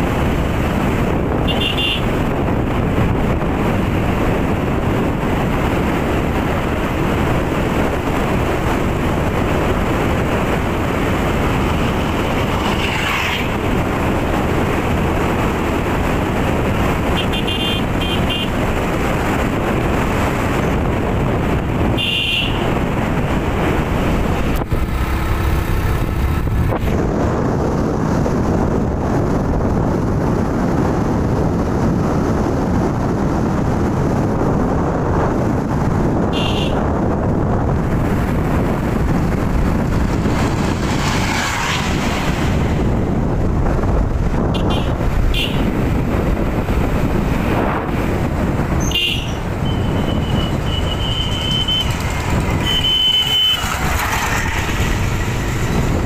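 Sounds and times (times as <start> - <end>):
motorcycle engine and wind rush: 0.0 - 56.0
short horn beeps: 48.8 - 51.8.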